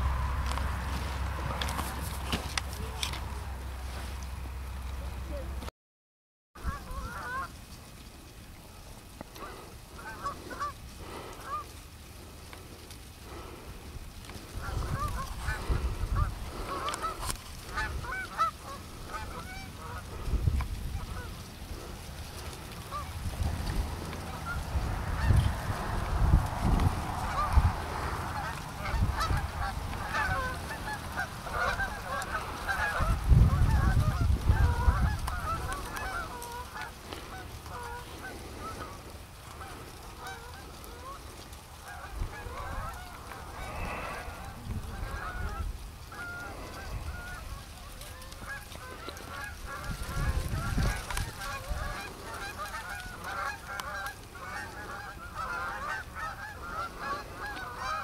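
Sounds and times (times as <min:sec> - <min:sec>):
geese honking: 0:06.6 - 0:58.0
low microphone rumble: 0:41.8 - 0:47.7.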